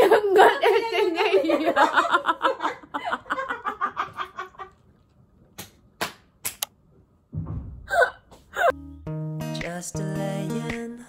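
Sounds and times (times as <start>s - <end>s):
woman laughing hard: 0.0s - 4.8s.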